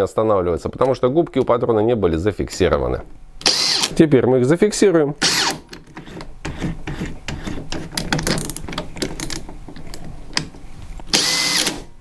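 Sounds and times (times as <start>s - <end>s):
drill chuck ratcheting clicks: 11.1s - 11.8s.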